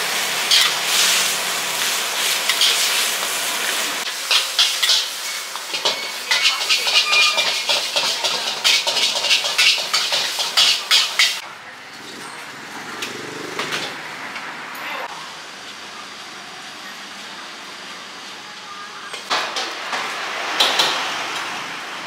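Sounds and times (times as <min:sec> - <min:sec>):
food sizzling: 0:00.0 - 0:11.4
spatulas clanking on woks: 0:00.4 - 0:11.4.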